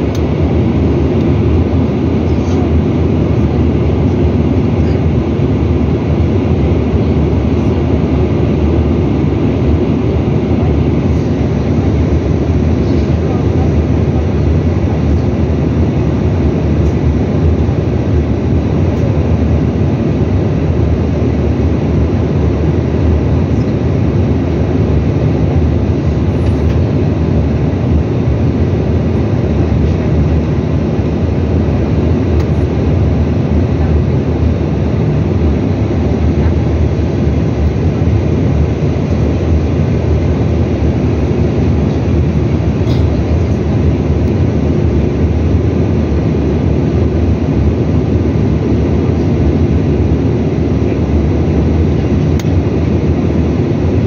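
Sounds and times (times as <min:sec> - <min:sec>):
airliner cabin roar: 0:00.0 - 0:54.0
faint steady engine whine: 0:00.0 - 0:54.0.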